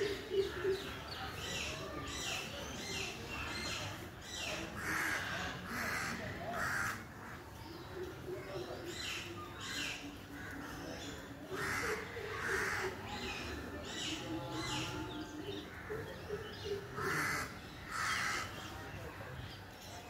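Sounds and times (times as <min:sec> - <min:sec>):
bird harsh calls: 0:08.8 - 0:18.8.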